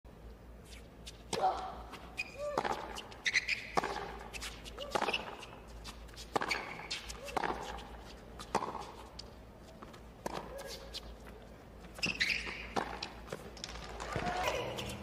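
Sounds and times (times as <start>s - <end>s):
shoe squeaks on court: 2.0s - 7.9s, 11.9s - 13.2s
tennis racquet striking ball: 2.4s - 4.3s, 6.3s - 9.0s, 12.4s - 15.0s.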